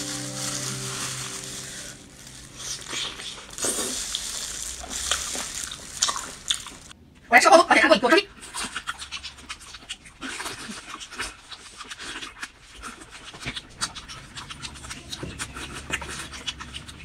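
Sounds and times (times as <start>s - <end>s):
wet chewing and smacking: 2.8s - 7.0s, 8.3s - 17.0s.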